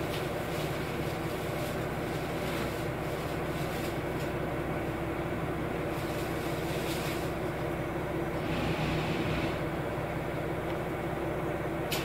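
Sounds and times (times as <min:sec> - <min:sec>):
diesel railcar engine hum: 0:00.0 - 0:12.0.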